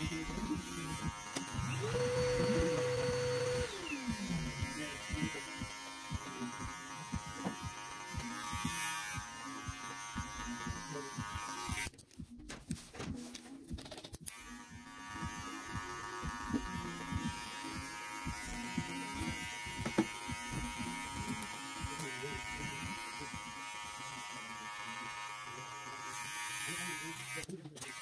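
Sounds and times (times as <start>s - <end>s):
electric hair clipper buzzing: 0.0s - 11.9s, 14.2s - 28.0s
clipper blade ticking through hair: 14.1s - 23.5s.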